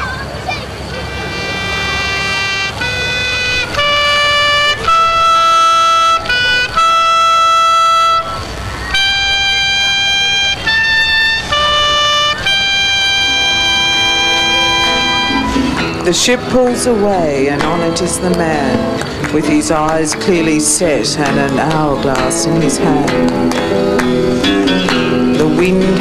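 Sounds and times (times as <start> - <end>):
trumpet-like held notes: 1.0 - 16.0.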